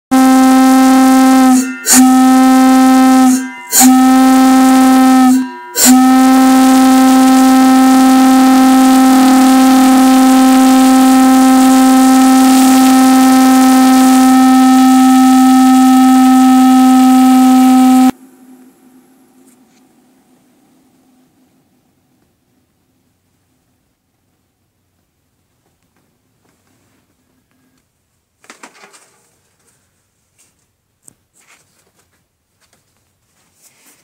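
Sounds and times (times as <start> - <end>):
brass bell whistle blowing: 0.1 - 18.2.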